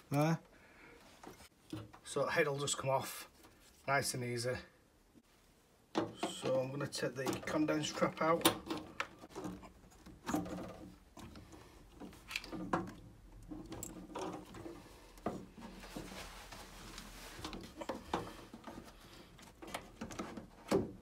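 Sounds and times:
rubbing rustle: 14.4 - 20.7.

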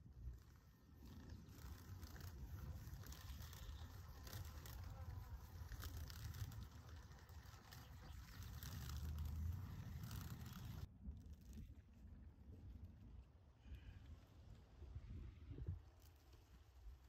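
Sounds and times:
low steady rumble: 0.0 - 15.7
insects buzzing: 0.3 - 10.9.

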